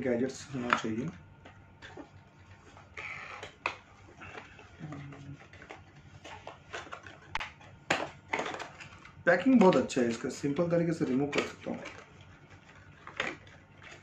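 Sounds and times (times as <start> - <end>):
plastic packaging clicks and rustles: 0.6 - 14.0
person humming: 4.8 - 5.4.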